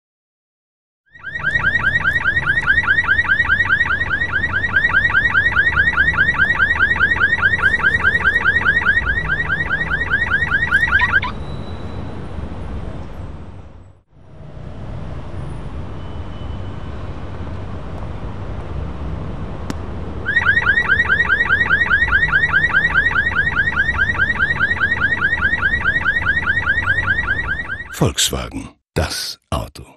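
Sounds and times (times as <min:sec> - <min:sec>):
car alarm chirping: 0:01.1 - 0:12.1, 0:20.3 - 0:28.0.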